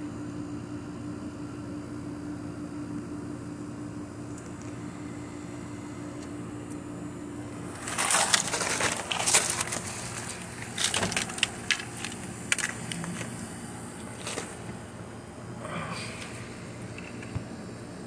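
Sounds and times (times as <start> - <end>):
steady low hum: 0.0 - 18.0
burning plastic crackling: 7.6 - 14.8.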